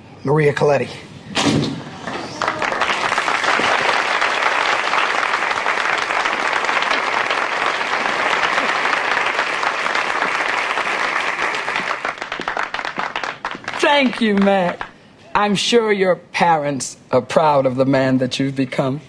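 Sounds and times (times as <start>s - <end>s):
congregation applauding: 2.0s - 15.0s.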